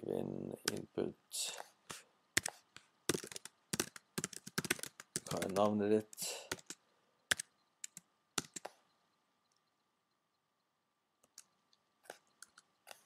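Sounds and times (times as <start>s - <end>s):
computer keyboard key clicks: 6.5s - 8.7s.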